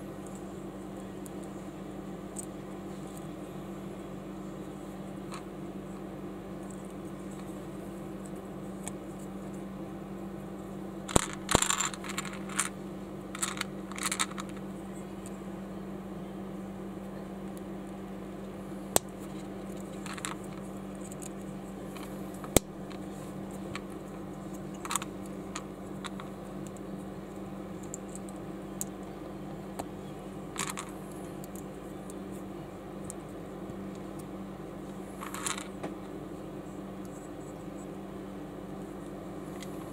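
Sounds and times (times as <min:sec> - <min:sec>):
steady low hum: 0:00.0 - 0:39.9
plastic bricks clicking: 0:11.1 - 0:12.7, 0:13.4 - 0:14.5, 0:30.6 - 0:30.9.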